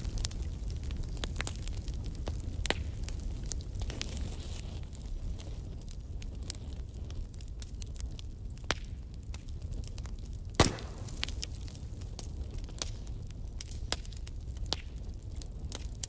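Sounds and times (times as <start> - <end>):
fire crackling: 0.0 - 16.0
loud crack: 10.6 - 11.4.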